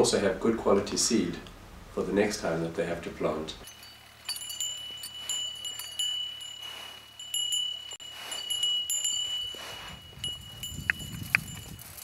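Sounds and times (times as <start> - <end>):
bell tone ringing steadily: 3.6 - 11.8
small metal bells jingling: 3.6 - 12.0.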